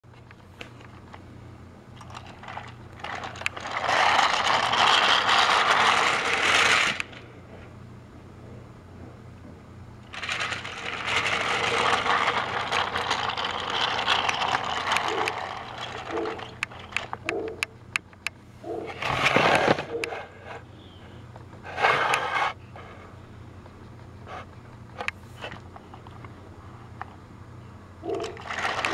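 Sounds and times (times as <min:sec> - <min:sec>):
toy train motor whirring: 0:02.0 - 0:07.2, 0:10.0 - 0:17.7, 0:28.0 - 0:28.9.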